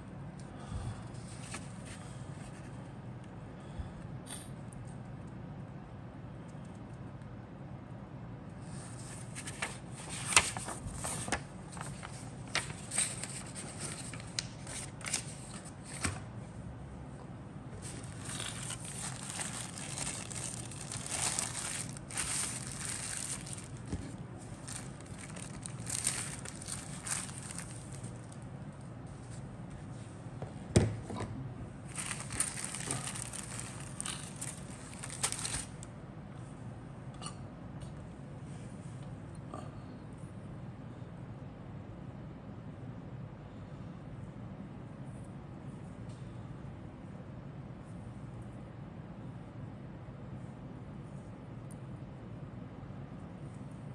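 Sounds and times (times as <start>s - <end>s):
paper rustling and crackling: 8.7s - 16.3s, 17.8s - 28.4s, 31.9s - 35.9s
plastic bags crinkling: 17.8s - 28.4s, 31.9s - 35.9s.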